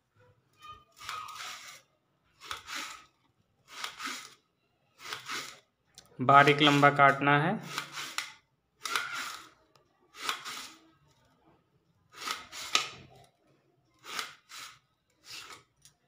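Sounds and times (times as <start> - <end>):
knife slicing onion: 7.6 - 9.5, 10.2 - 10.8, 12.1 - 13.1.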